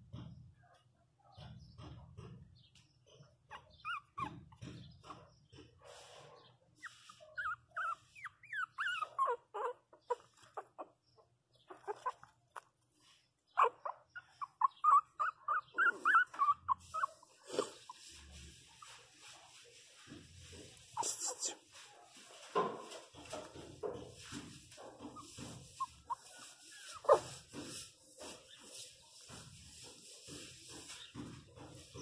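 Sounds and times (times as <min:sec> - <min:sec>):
puppies whimpering and yelping: 0:03.5 - 0:05.2, 0:06.8 - 0:11.0, 0:11.6 - 0:12.4, 0:13.5 - 0:19.1, 0:25.0 - 0:27.5.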